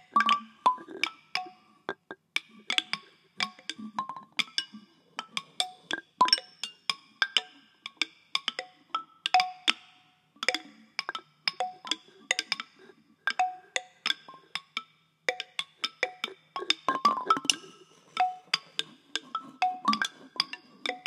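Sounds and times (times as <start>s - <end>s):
found-object percussion taps: 0.0s - 6.6s, 15.3s - 21.0s.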